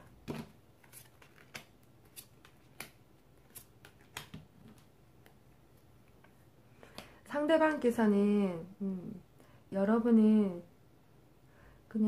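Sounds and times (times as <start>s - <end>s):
cards clicking and slapping: 0.2s - 5.4s.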